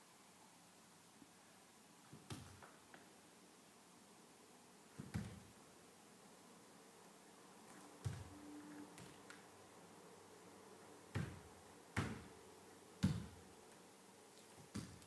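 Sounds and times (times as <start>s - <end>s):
bare feet thumping on dance floor: 2.1s - 2.7s, 5.0s - 5.5s, 8.0s - 8.3s, 11.1s - 12.3s, 13.0s - 13.4s, 14.6s - 15.0s.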